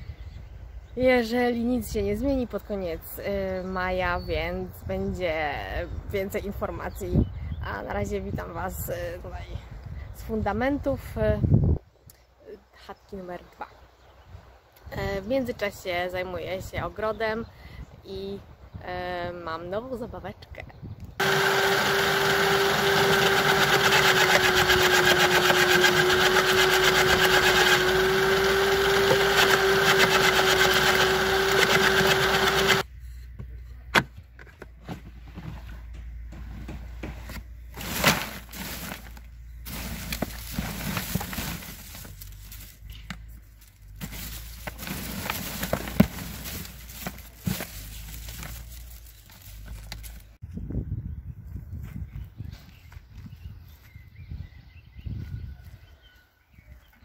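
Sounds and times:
branch shredder whining: 21.2s - 32.9s, 37.8s - 42.8s, 43.9s - 50.2s
rustling: 37.2s - 50.4s.

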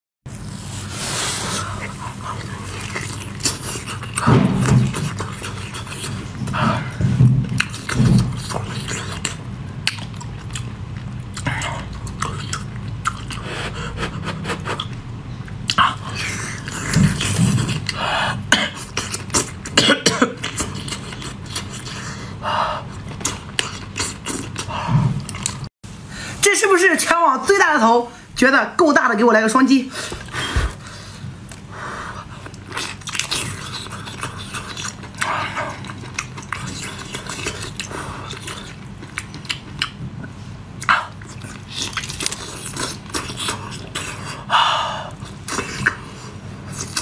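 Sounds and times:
person chewing with wet mouth clicks: 7.6s - 13.4s, 32.4s - 44.3s.

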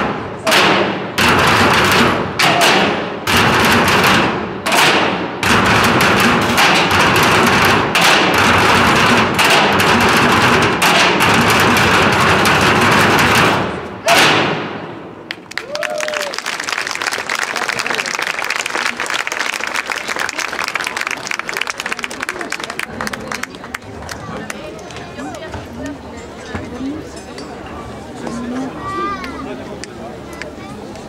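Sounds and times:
drumming on metal drums: 0.0s - 14.4s
drumming on plastic barrels: 0.0s - 14.6s.

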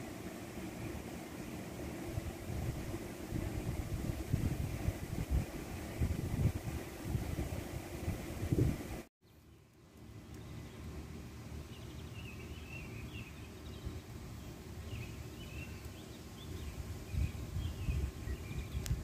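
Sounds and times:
small birds twittering: 9.2s - 19.0s.

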